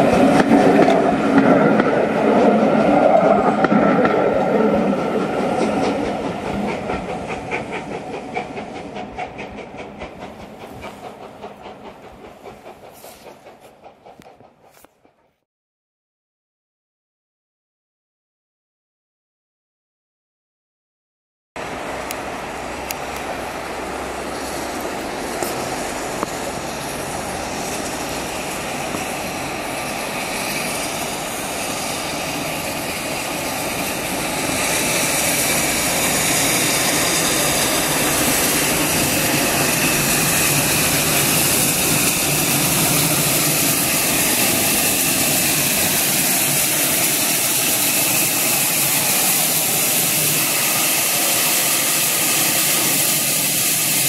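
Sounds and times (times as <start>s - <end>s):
steam locomotive hissing steam: 4.3s - 14.9s, 21.6s - 54.0s.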